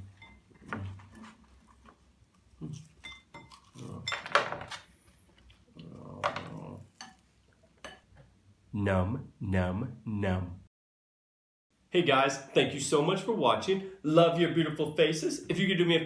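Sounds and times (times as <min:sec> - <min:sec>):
man chewing food: 0:00.0 - 0:07.8.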